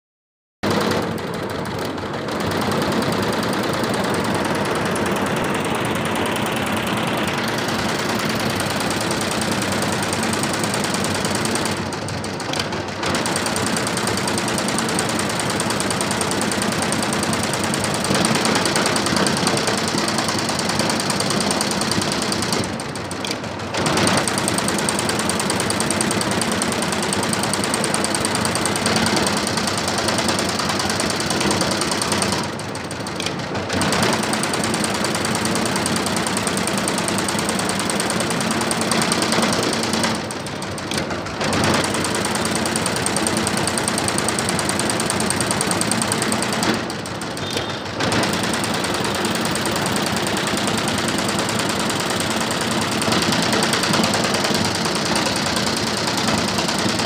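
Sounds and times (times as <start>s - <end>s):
embroidery machine stitching: 0.6s - 57.0s.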